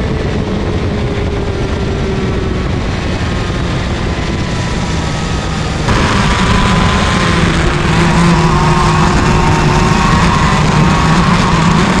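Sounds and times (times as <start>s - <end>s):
kart engine at high revs: 0.0s - 12.0s
wind noise on microphone: 0.0s - 12.0s.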